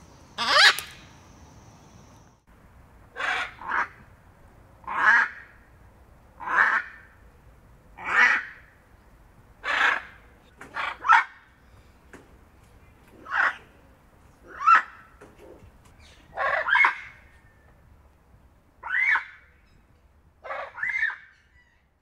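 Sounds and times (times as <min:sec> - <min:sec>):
macaw squawking: 0:00.4 - 0:01.0, 0:03.2 - 0:04.0, 0:09.6 - 0:11.3, 0:16.0 - 0:17.2, 0:18.8 - 0:19.4, 0:20.4 - 0:21.8.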